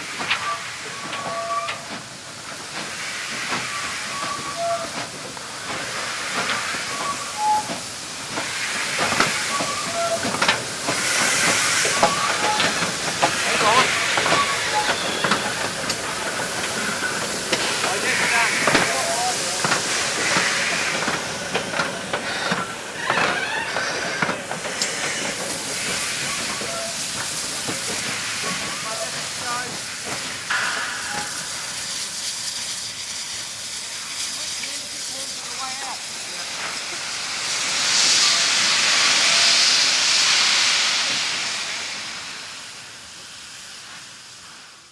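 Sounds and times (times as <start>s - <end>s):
steam hissing: 0.0s - 44.9s
running gear clanking on rails: 0.1s - 33.0s.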